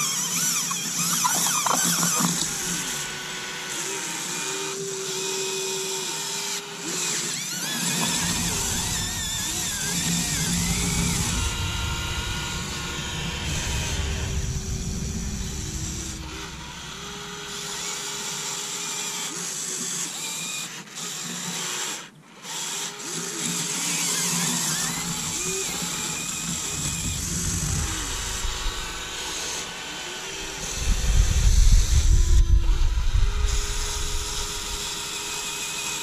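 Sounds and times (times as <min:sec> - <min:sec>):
small electric motors whining: 0:00.0 - 0:36.0
low rumble: 0:08.0 - 0:18.6, 0:25.0 - 0:35.8.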